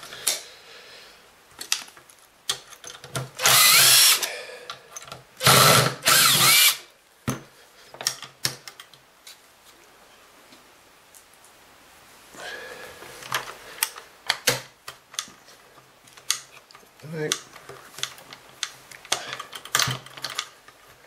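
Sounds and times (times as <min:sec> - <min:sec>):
tool and parts clicking: 0:01.6 - 0:06.8, 0:16.1 - 0:20.8
cordless driver spinning: 0:03.4 - 0:04.3, 0:05.4 - 0:06.8.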